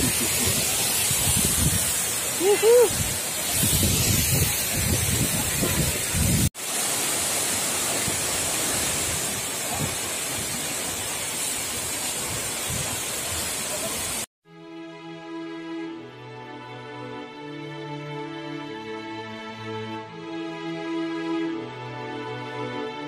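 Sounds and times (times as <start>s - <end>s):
wind buffeting microphone: 0.0s - 2.1s, 2.8s - 6.5s
waterfall rushing: 0.0s - 14.3s.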